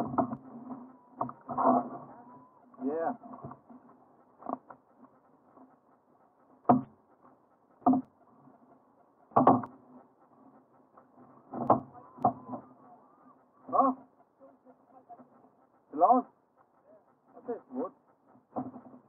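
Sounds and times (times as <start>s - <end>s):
knocks and creaks on kayak: 0.0s - 2.1s, 3.2s - 5.0s, 6.6s - 7.0s, 7.8s - 8.2s, 9.3s - 10.0s, 11.1s - 12.8s, 18.5s - 19.0s.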